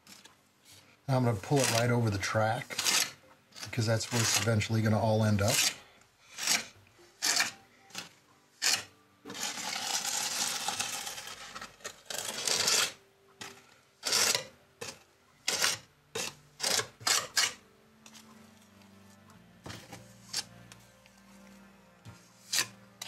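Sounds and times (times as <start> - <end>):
metal trowel scraping cement: 1.1 - 18.2, 19.7 - 20.6, 22.1 - 23.0.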